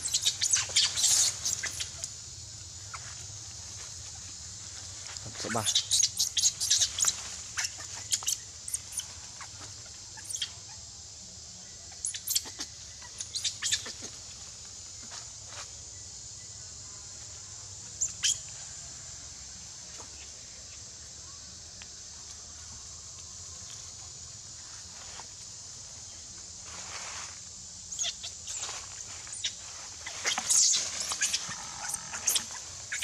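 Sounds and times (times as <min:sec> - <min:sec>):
steady high hiss: 0:00.0 - 0:33.0.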